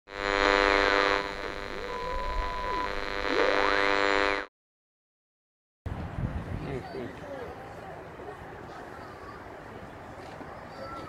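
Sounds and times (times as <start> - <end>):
radio static hiss: 0.1 - 4.5
steady beep: 0.6 - 4.5.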